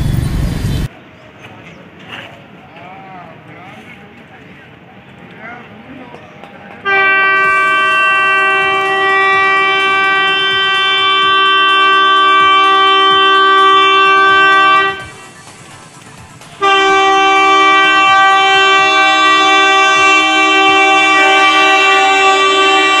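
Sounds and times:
locomotive horn blasts: 6.8 - 15.3, 16.6 - 23.0.

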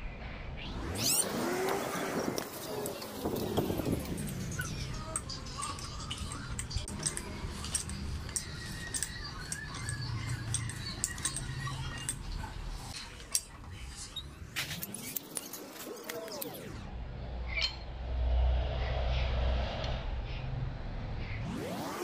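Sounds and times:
pliers clicking on metal: 2.4 - 13.6.

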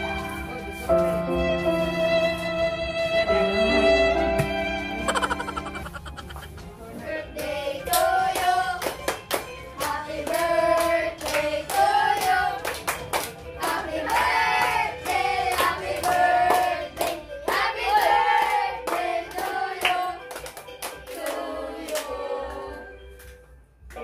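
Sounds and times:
adults and children singing: 6.9 - 9.1, 9.7 - 12.9, 13.6 - 20.3, 21.0 - 23.0
hands clapping: 7.4 - 22.1.

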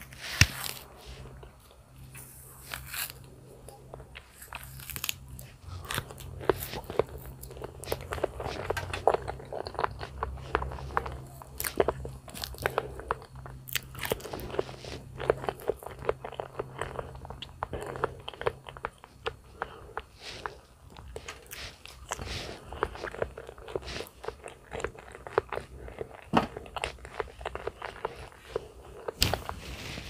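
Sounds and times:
low hum: 0.0 - 30.0
person chewing: 0.0 - 30.0.

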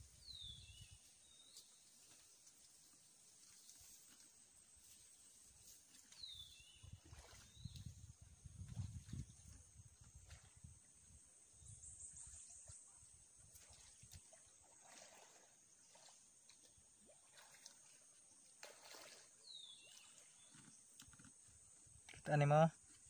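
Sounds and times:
faint chirp: 11.4 - 13.9.

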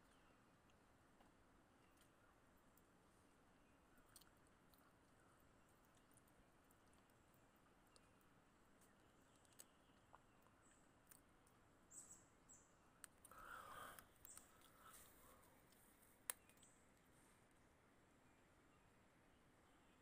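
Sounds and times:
soft rustle: 14.0 - 17.4.

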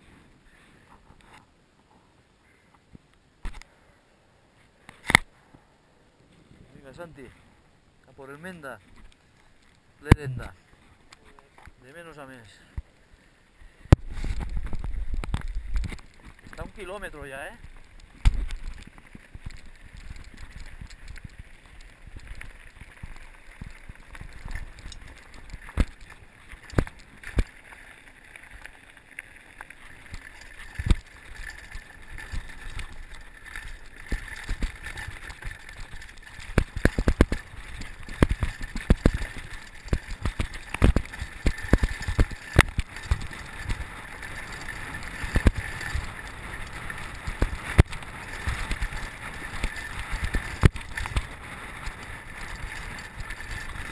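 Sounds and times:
bike tyres on gravel: 13.7 - 53.9.

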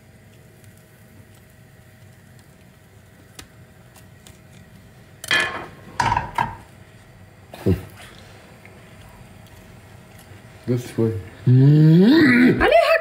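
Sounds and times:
cutlery clinking on a plate: 5.2 - 6.6.

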